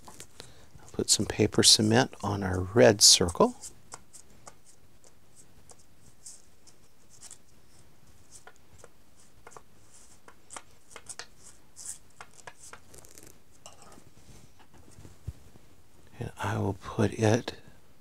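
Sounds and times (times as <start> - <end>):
glue brush scratching on paper: 3.4 - 13.3.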